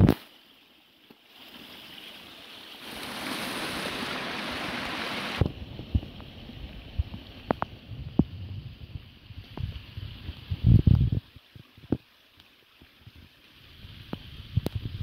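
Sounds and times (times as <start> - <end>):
stream rushing over rocks: 0.0 - 8.2.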